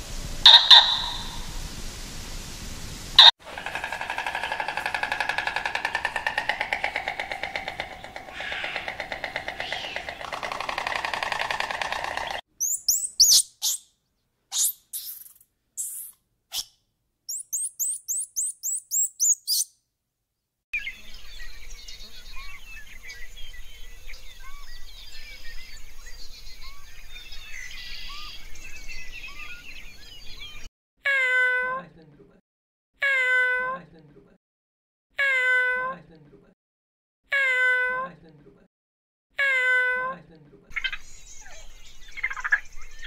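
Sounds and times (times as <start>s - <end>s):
chorus of small animal calls: 0.4s - 1.5s, 3.2s - 13.8s
long pitched animal calls: 0.4s - 1.5s, 3.2s - 13.8s
sharp high chirps: 0.5s - 1.4s, 12.6s - 13.9s, 17.3s - 19.7s.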